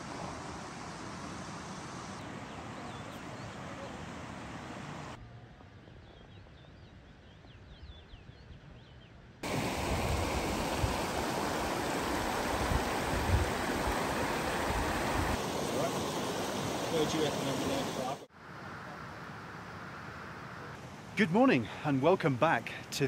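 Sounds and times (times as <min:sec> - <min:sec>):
river rushing over rocks: 0:09.4 - 0:18.3.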